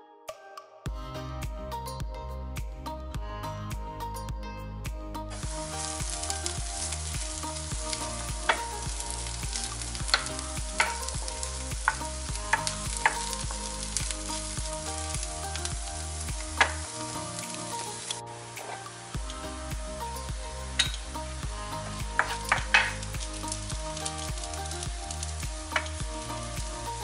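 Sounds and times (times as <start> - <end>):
background music: 0.0 - 27.0
onions sizzling in a pan: 5.4 - 27.0.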